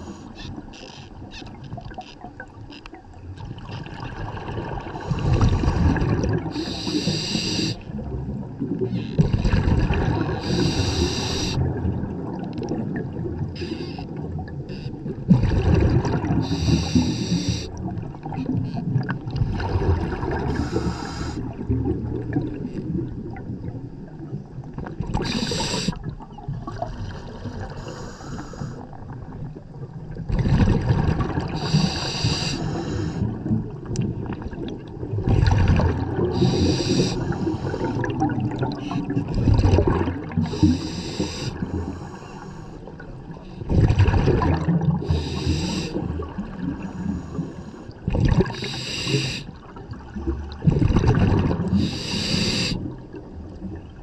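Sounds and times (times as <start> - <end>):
exhaled bubbles gurgling underwater: 0.0 - 54.0
regulator hiss on inhalation: 6.6 - 7.8, 10.4 - 11.6, 13.6 - 14.0, 16.4 - 17.7, 20.5 - 21.4, 25.2 - 26.0, 27.8 - 28.8, 31.6 - 33.2, 36.4 - 38.0, 40.5 - 42.7, 45.0 - 46.0, 48.5 - 49.5, 51.8 - 52.8.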